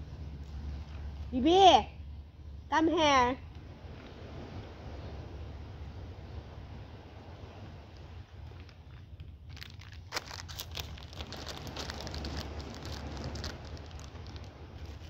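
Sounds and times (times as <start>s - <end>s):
steady low rumble: 0.0s - 15.0s
packaging crinkling: 8.6s - 15.0s.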